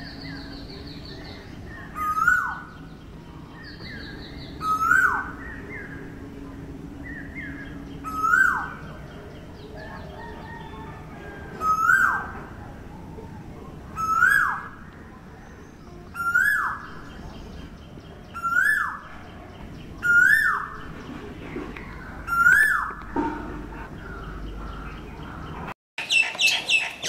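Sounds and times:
chattering bird notes: 13.8s - 27.0s.

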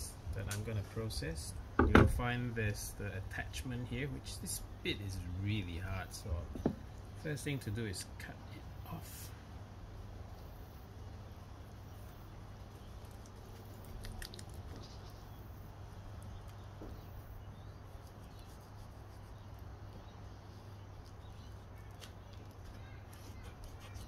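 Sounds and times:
steady low hum: 0.0s - 24.0s
small clicks and crackles: 12.8s - 15.3s, 20.9s - 24.0s.

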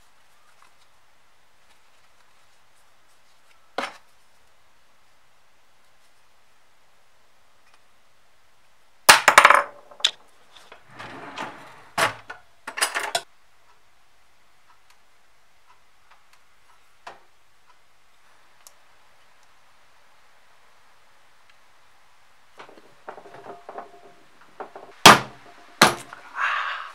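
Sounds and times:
cutlery drawer opening: 10.7s - 13.2s
metal cutlery clattering: 12.7s - 13.2s.

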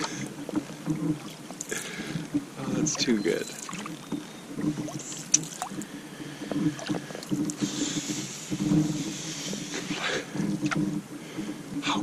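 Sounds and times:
water dripping: 0.0s - 8.0s
paddle splashing through water: 0.0s - 10.8s.

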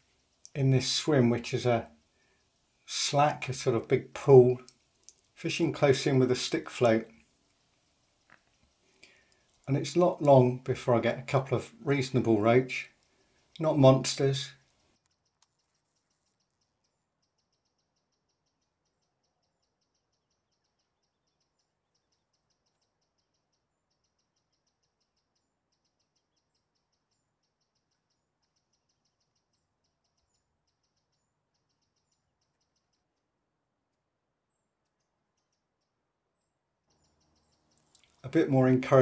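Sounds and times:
insects chirring with rapid ticks: 7.1s - 9.7s.

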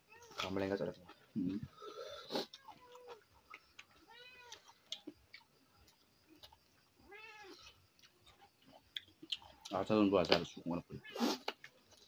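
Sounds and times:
cat meowing: 4.0s - 4.6s, 7.0s - 7.6s.

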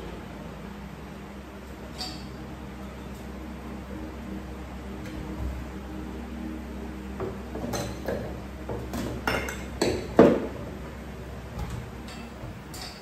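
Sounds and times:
bottles clinking together: 8.9s - 10.5s, 11.6s - 13.0s.

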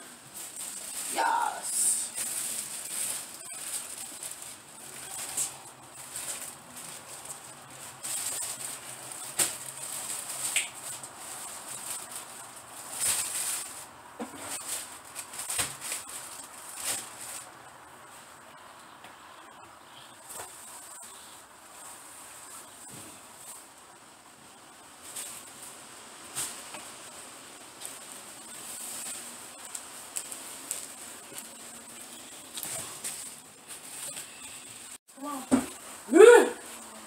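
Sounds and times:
shopping bags rustling: 0.0s - 18.6s, 19.4s - 37.0s.

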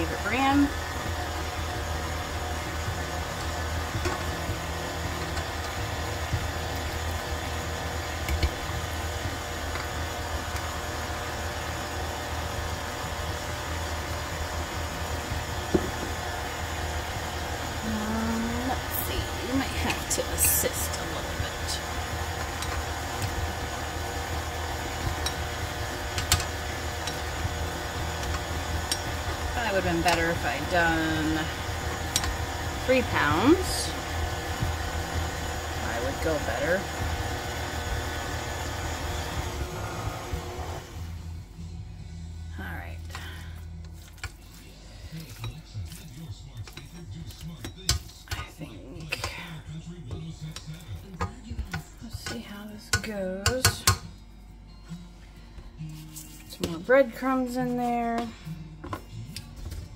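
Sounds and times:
stand mixer motor hum: 0.0s - 41.4s
beater knocking in bowl: 15.6s - 16.3s.

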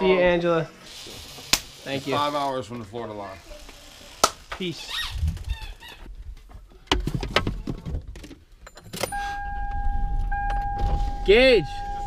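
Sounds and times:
car electronic warning tone: 9.1s - 12.0s.

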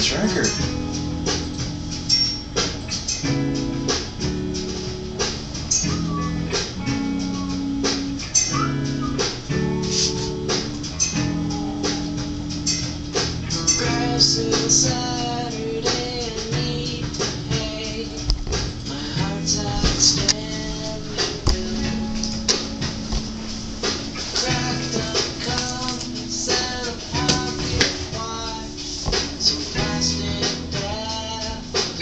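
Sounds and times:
song with strummed guitar: 0.0s - 32.0s
steady beat: 0.0s - 32.0s
person singing: 13.6s - 23.1s, 24.2s - 32.0s.

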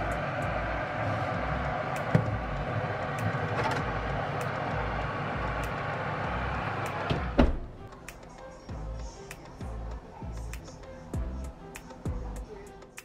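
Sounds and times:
oven humming: 0.0s - 8.0s.

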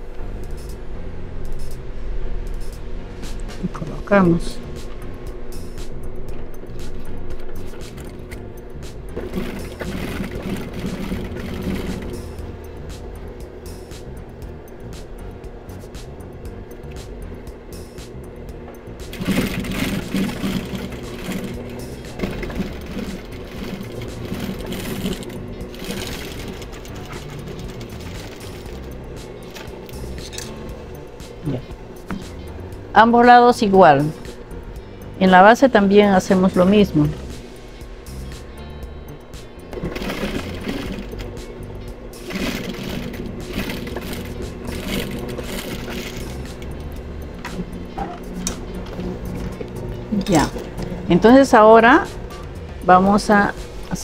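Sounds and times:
background music: 0.0s - 54.0s
sewing machine stitching: 9.1s - 12.4s, 19.1s - 30.5s, 39.7s - 41.4s, 42.2s - 46.8s.

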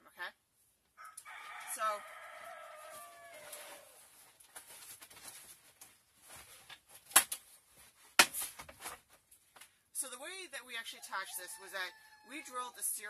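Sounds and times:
rooster crowing: 1.0s - 4.0s
handling taps and rustles: 4.2s - 9.8s.

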